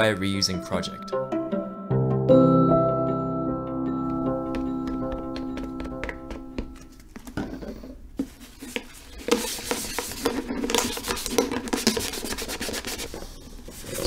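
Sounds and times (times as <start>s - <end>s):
scraping on hard plastic: 7.2s - 14.0s.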